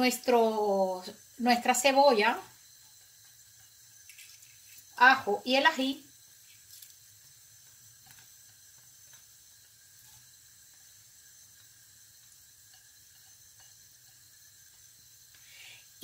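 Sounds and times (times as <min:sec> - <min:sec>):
faint steady hum: 0:00.0 - 0:16.0
peppers scraped into wok: 0:03.6 - 0:05.0.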